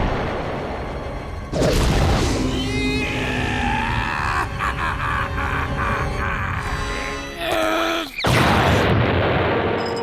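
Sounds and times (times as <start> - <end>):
dramatic music: 0.0 - 10.0
cartoon explosion rumble: 8.2 - 9.8
loud boom: 8.2 - 9.8.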